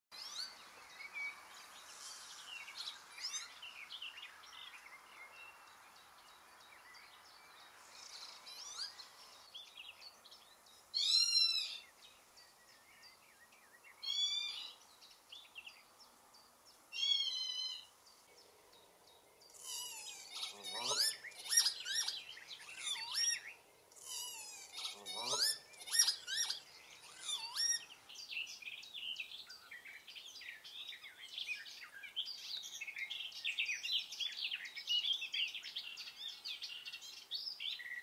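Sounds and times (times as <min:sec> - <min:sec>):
faint steady hiss: 0:00.2 - 0:38.0
lapwings calling: 0:11.0 - 0:11.9, 0:19.5 - 0:28.0.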